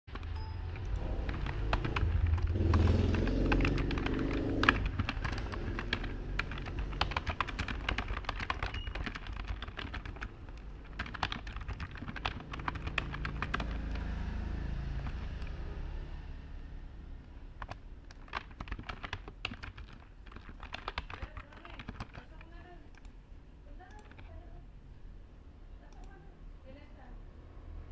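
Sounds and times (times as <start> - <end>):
low background rumble: 0.1 - 13.7.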